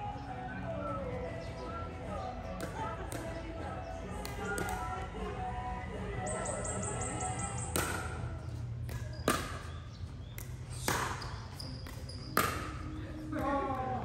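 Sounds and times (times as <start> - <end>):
sharp hits of a racket rally: 7.6 - 8.2, 8.9 - 13.5.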